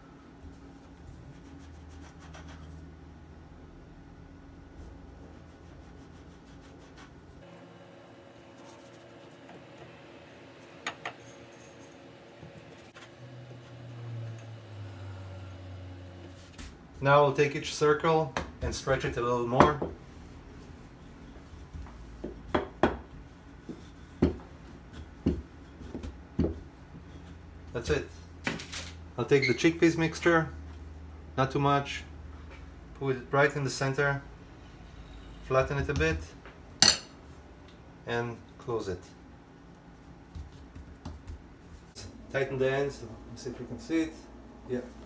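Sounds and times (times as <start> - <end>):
glass bowl rubbing on dough: 5.2 - 7.3
rolling pin knocking on counter: 22.2 - 23.1.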